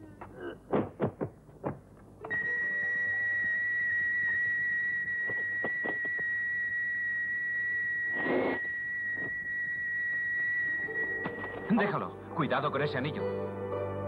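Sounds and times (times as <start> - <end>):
high whistle-like electronic tone: 2.2 - 12.0.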